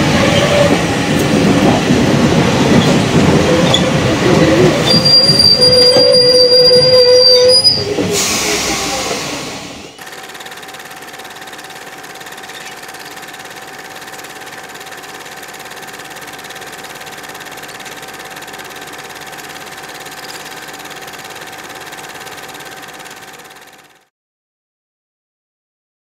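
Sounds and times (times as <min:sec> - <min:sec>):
film projector clattering: 0:10.0 - 0:24.1.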